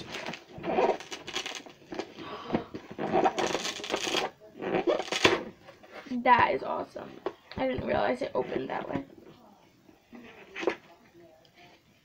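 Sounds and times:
packaging rustling and crackling: 0.0s - 4.4s, 5.0s - 5.4s.

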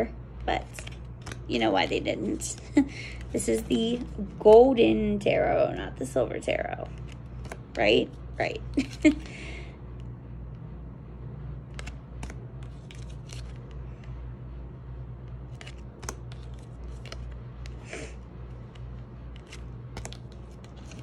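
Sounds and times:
low hum: 0.0s - 21.0s
cards being flipped: 0.4s - 4.8s, 6.8s - 9.3s, 11.6s - 14.4s, 15.1s - 21.0s.

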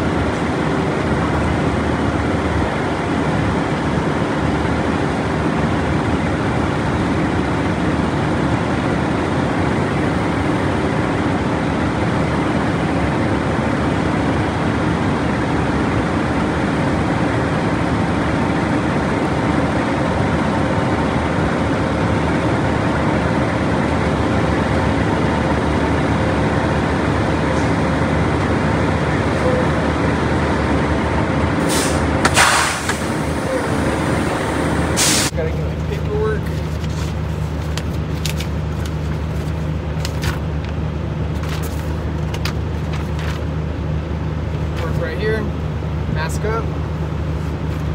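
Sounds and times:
diesel truck engine idling: 0.0s - 47.9s
sharp air hisses: 31.6s - 33.1s, 35.0s - 35.3s.

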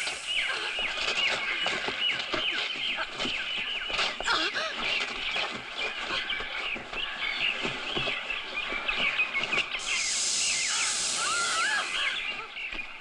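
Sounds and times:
thumps and scuffles: 0.0s - 9.9s
birds chirping and warbling: 0.0s - 13.0s
snake hissing: 9.8s - 12.3s.

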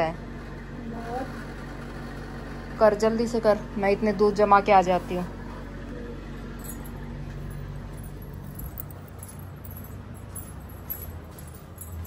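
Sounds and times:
low steady hum: 3.5s - 12.0s
small clinks: 6.6s - 12.0s.

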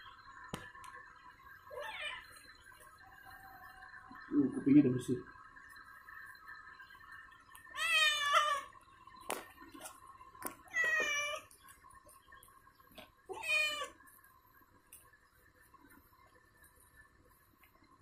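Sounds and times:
cat meowing: 1.7s - 2.3s, 7.8s - 8.7s, 10.7s - 11.5s, 13.3s - 14.0s.

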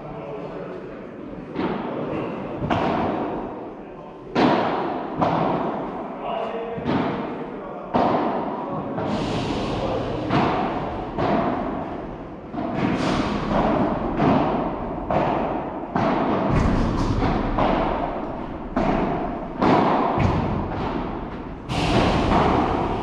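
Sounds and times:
balls struck with rackets: 1.5s - 3.6s, 4.3s - 6.0s, 6.8s - 9.2s, 9.9s - 23.0s.

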